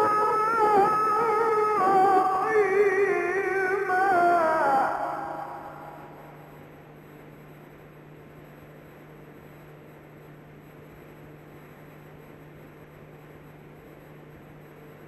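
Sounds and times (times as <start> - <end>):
low hum: 0.0 - 7.9.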